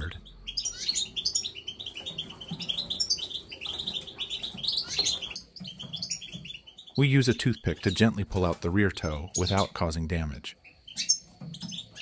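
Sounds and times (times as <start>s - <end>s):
finches chirping: 0.0s - 12.0s.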